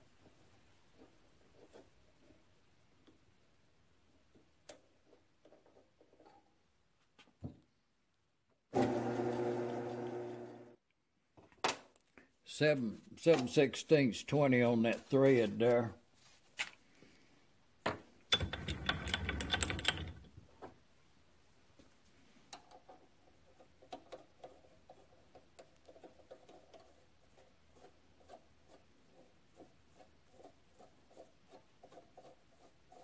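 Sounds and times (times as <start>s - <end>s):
metal nut ticking and scraping: 18.3s - 20.3s, 22.5s - 27.1s.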